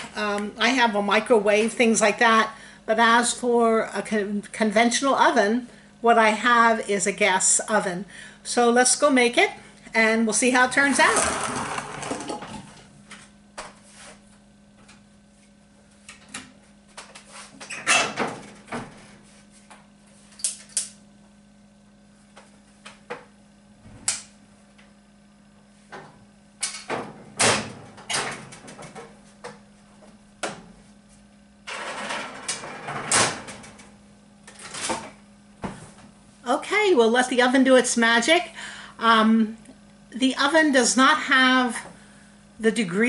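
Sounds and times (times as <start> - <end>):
steady low hum: 0.0 - 43.0
metal clanks of oven door and rack: 31.7 - 33.9.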